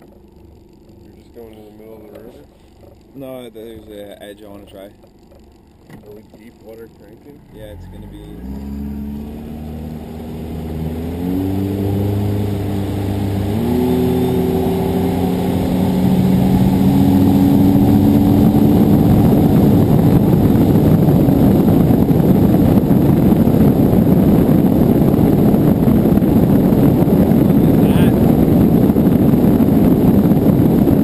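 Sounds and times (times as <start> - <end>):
outboard motor accelerating: 0.0 - 31.0
rush of wind and water: 8.4 - 31.0.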